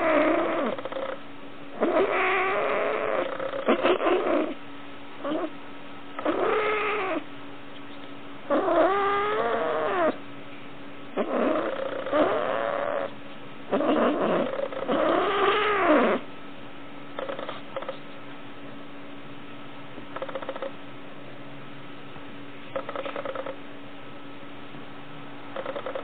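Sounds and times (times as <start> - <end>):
cat moaning cries: 0.0 - 1.2, 1.8 - 4.6, 5.2 - 5.5, 6.2 - 7.2, 8.5 - 10.2, 11.2 - 13.1, 13.7 - 16.2.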